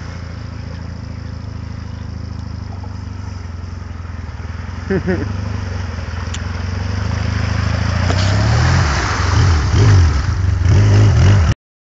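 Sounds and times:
quad engine revving: 0.0 - 11.6
water splashing around wheels: 0.0 - 11.6.

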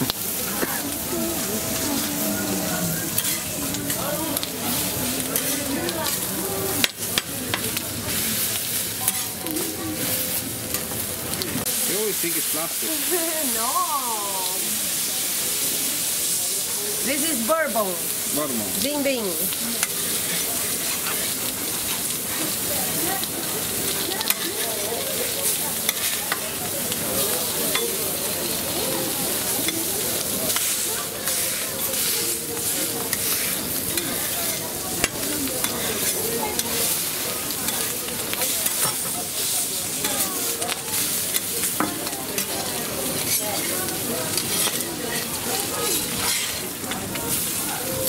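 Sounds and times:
burger patties sizzling on griddle: 0.0 - 48.0
utensil clicking on griddle: 23.2 - 27.0, 29.6 - 47.2.

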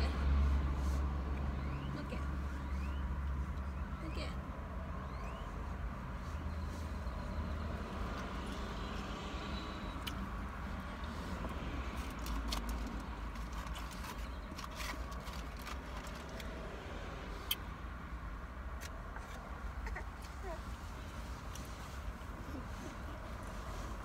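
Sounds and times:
car cabin engine hum: 0.0 - 24.0.

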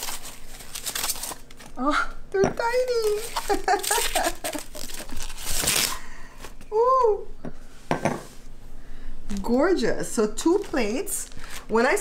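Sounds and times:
foam wrap crinkling: 0.0 - 1.8, 2.6 - 6.2
glass set down on table: 7.9 - 8.3.

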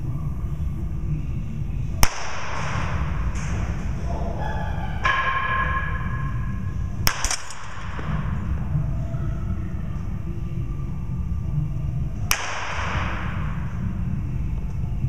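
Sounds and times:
low hum: 0.0 - 15.0
bat striking ball: 2.0 - 3.8, 5.0 - 8.6, 12.3 - 13.7.

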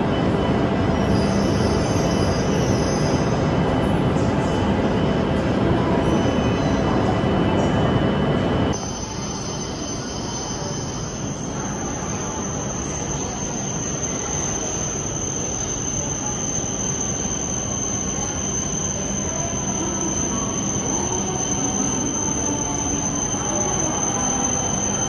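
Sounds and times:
high-pitched whine: 0.0 - 25.0
wavering brake squeals: 0.1 - 4.6, 5.8 - 8.0, 8.7 - 25.0.

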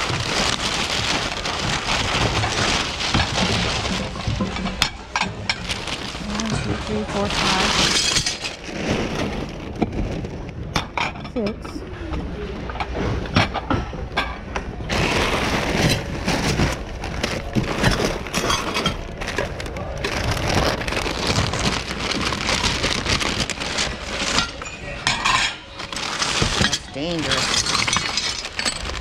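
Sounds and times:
goods clattering in a bin: 0.0 - 11.7, 12.8 - 29.0
faint voices: 18.8 - 21.2.

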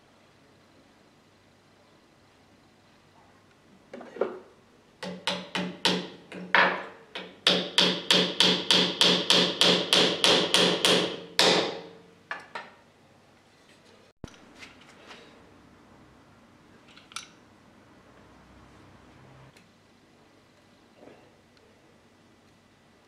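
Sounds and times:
hammer striking wood: 5.0 - 12.0.

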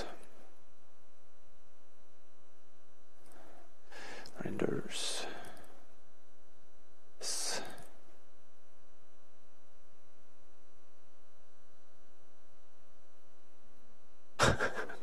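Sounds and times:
faint electrical hum: 0.0 - 15.0
breath into microphone: 3.3 - 4.3.

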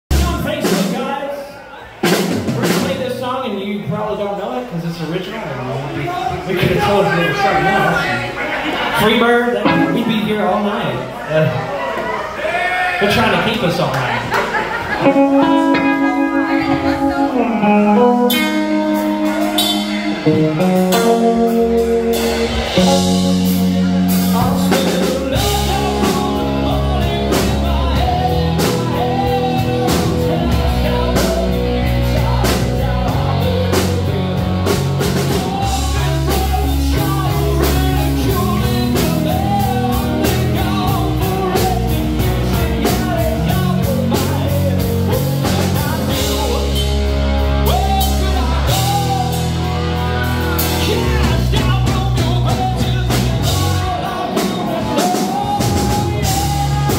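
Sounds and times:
bass guitar: 0.0 - 1.1, 5.7 - 11.8, 13.1 - 56.9
drum kit beat: 0.1 - 1.2, 2.0 - 3.2, 9.6 - 10.8, 15.0 - 56.9
electric guitar: 8.0 - 11.7, 13.9 - 56.9
person singing: 9.6 - 10.6, 15.0 - 56.9.

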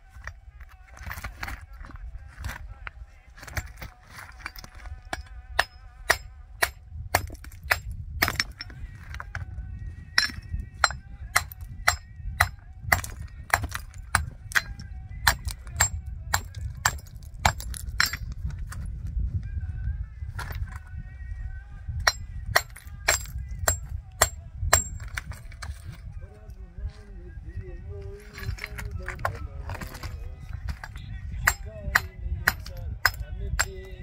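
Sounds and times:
hammer striking stone: 3.4 - 8.7, 10.2 - 18.3, 22.1 - 25.7, 30.7 - 33.8.

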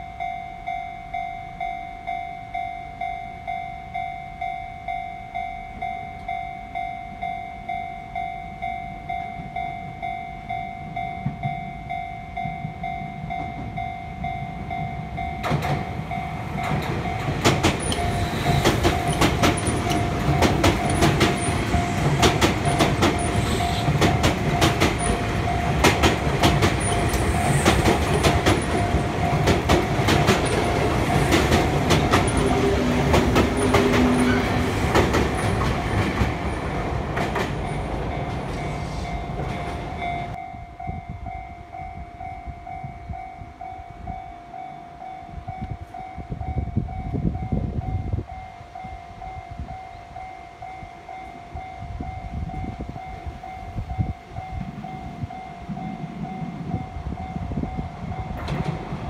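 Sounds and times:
level crossing bell ringing: 0.0 - 25.9
train wheels clacking: 12.3 - 40.4, 57.7 - 59.0.

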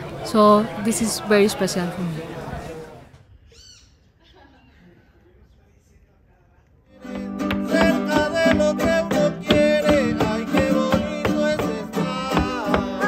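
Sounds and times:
guitars strummed: 7.0 - 13.0
woman singing: 7.6 - 13.0.

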